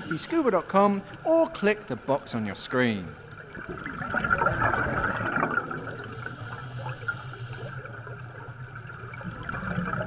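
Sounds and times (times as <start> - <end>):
underwater air bubbles gurgling: 3.2 - 10.0.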